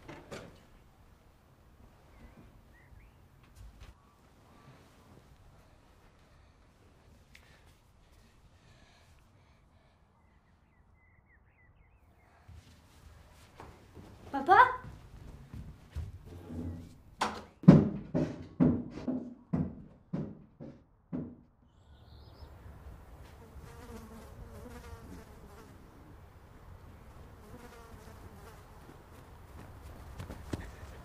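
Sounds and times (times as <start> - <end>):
heavy footsteps: 12.5 - 17.1
insects buzzing: 23.1 - 26.1, 26.9 - 29.2.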